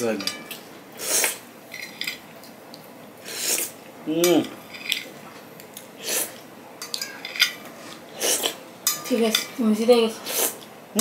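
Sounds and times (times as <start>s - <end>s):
metal spoon scraping plate: 4.6s - 5.1s, 6.8s - 8.0s.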